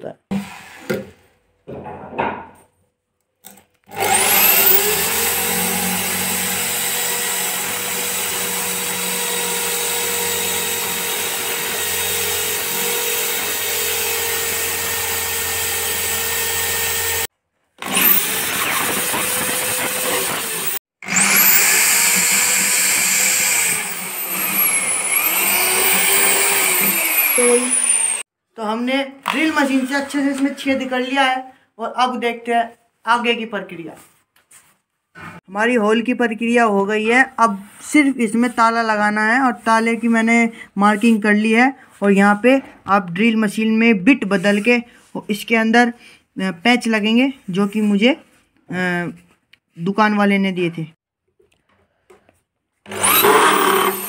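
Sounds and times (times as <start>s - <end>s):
electric drill whining: 3.9s - 28.3s, 52.9s - 54.0s.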